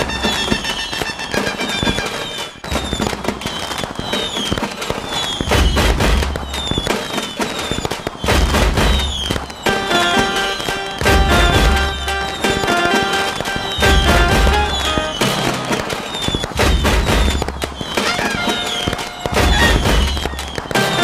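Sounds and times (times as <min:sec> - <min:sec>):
fireworks crackling and popping: 0:00.0 - 0:21.0
falling whistles: 0:00.1 - 0:21.0
deep booms: 0:08.3 - 0:09.2, 0:16.5 - 0:18.0, 0:19.3 - 0:20.5.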